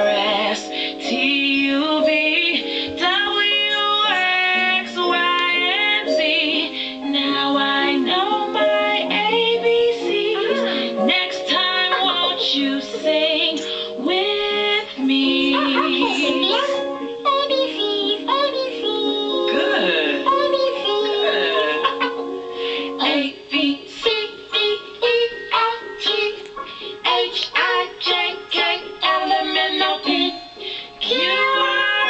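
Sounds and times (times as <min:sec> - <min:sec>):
instrumental backing music: 0:00.0 - 0:32.0
high voice singing: 0:10.0 - 0:22.2.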